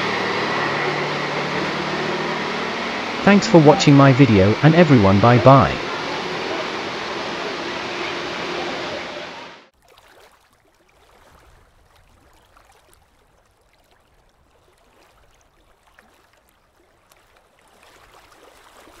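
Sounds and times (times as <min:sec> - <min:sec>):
outdoor rushing noise: 0:00.0 - 0:09.7.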